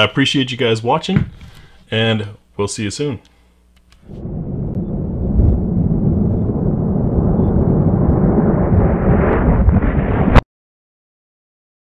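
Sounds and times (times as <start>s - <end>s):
deep cinematic rumble riser: 4.1s - 10.4s.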